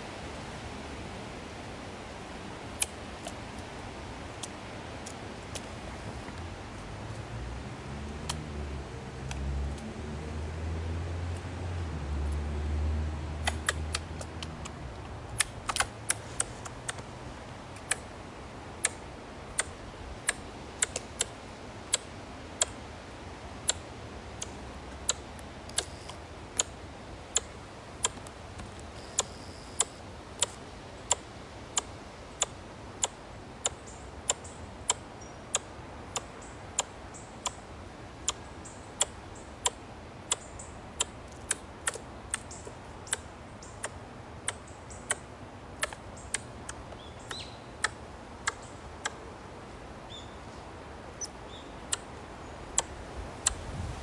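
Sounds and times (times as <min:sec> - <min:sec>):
squirrel clicking calls: 0:13.4 - 0:17.1, 0:17.8 - 0:18.1, 0:18.8 - 0:22.8, 0:23.6 - 0:23.8, 0:24.4 - 0:28.3, 0:29.0 - 0:37.6, 0:38.2 - 0:49.2, 0:51.2 - 0:52.1, 0:52.7 - 0:53.6.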